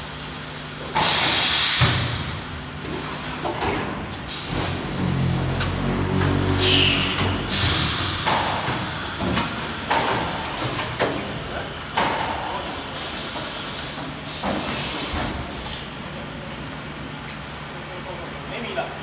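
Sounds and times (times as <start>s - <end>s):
machine low hum: 4.5s - 10.6s
air hisses: 6.6s - 9.1s.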